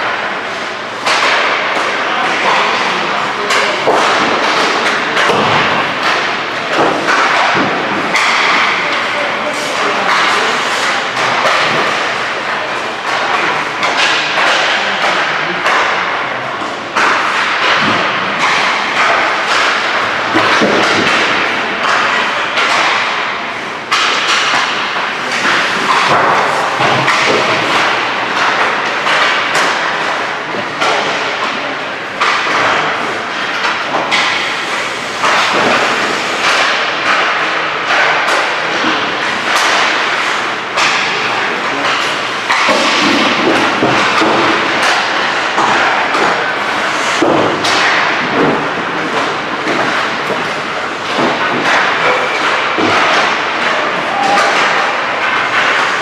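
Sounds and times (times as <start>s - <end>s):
pucks and sticks thudding: 0.0s - 56.0s.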